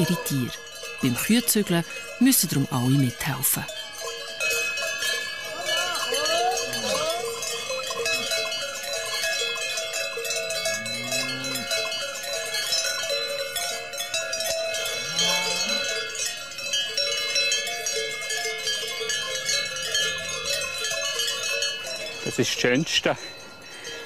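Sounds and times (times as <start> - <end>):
cowbells clanging: 0.0 - 24.0
low rising and falling calls: 5.5 - 8.2.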